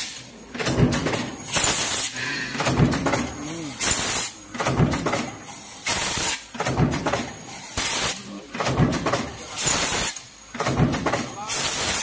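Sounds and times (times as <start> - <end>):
stamping press strokes: 0.0 - 12.0
compressed air hiss: 1.5 - 2.6, 3.7 - 4.4, 5.8 - 6.4, 7.6 - 8.2.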